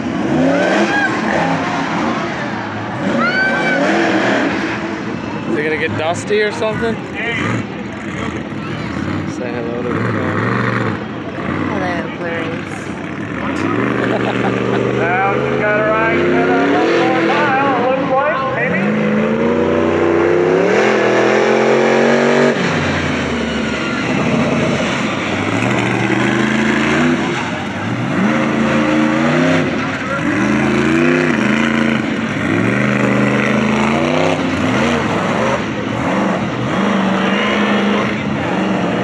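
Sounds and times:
race car engines accelerating: 0.0 - 39.0.

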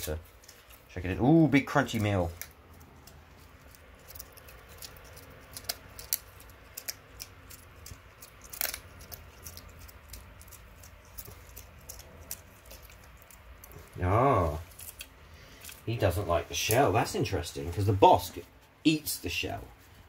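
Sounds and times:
snail shell cracking: 1.9 - 14.0, 14.7 - 16.0.

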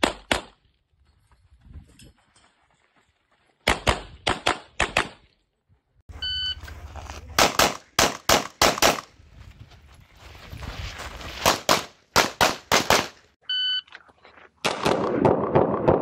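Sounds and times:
shot timer beep: 6.2 - 6.6
pistol shots: 7.4 - 9.1, 11.5 - 13.2.

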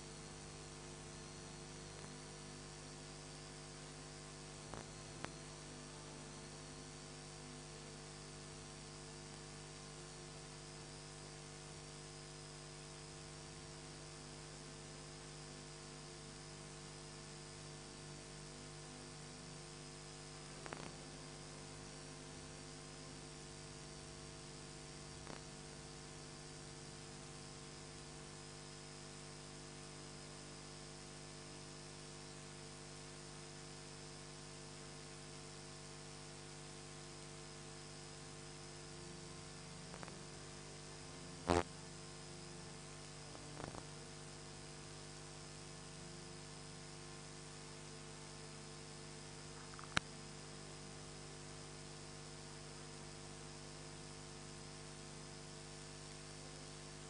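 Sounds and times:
steady electrical hum: 0.0 - 57.0.

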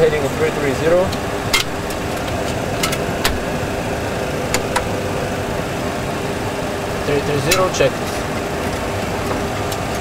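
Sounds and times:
aircraft engine and airflow noise: 0.0 - 10.0
cockpit switches clicking: 4.5 - 5.0.

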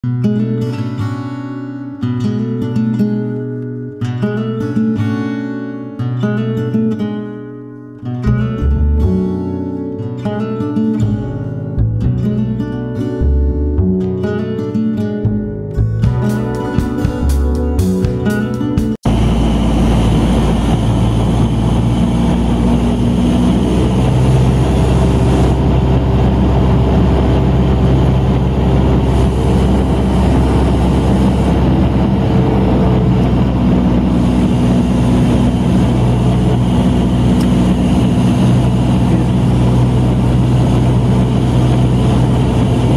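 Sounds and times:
aircraft engine and propeller droning: 16.2 - 42.9.

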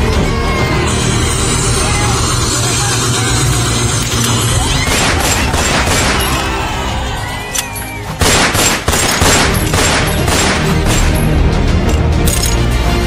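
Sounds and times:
loud music: 0.0 - 13.0
rapid sharp bangs: 4.1 - 6.5, 8.2 - 11.2.

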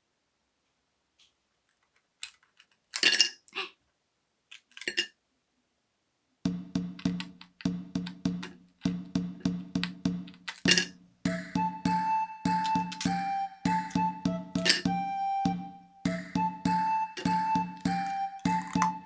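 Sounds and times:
toffee cracking and clicking: 1.7 - 3.1
music with repeating beat: 6.5 - 19.0.

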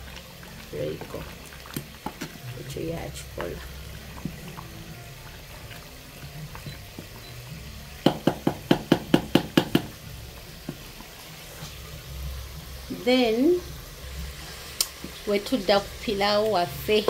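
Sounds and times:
wooden spoon knocking on pot: 8.0 - 10.0, 10.6 - 10.9.

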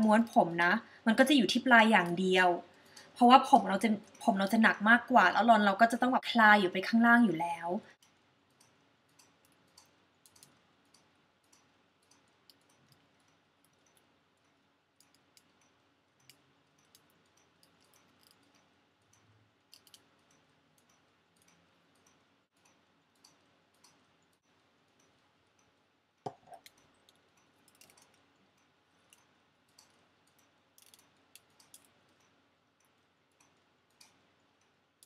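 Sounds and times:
faint small clicks: 7.9 - 24.4, 26.6 - 34.8.

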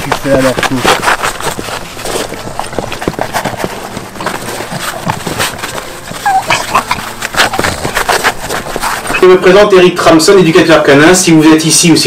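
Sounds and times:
dog licking: 0.0 - 9.3
dog panting: 0.0 - 9.4.

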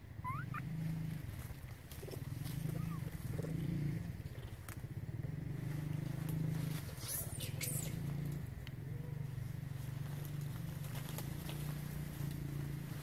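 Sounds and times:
steady low hum: 0.0 - 13.0
high-pitched squeaks: 0.2 - 0.6.

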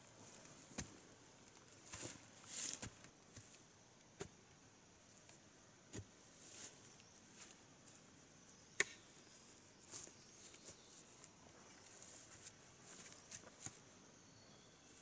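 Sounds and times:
rustling of ferns and brush: 0.0 - 3.6, 5.2 - 8.1, 9.3 - 13.9
hand tool chopping into ground: 8.8 - 9.0.

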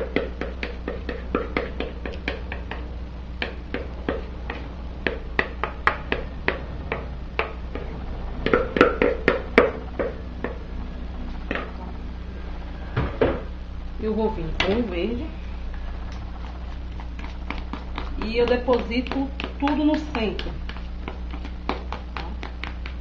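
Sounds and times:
utensil tapping a mixing bowl: 0.0 - 7.6, 17.2 - 23.0
steady low hum: 0.0 - 23.0.

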